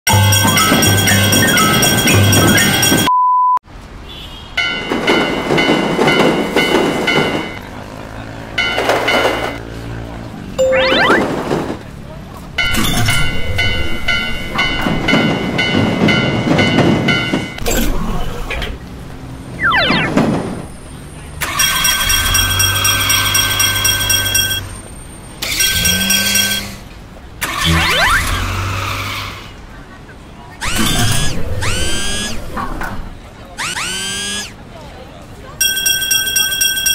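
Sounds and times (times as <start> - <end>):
train wheels clacking on rails: 0.1 - 3.1, 4.6 - 9.7, 11.2 - 17.6
steady high tones: 10.6 - 11.4.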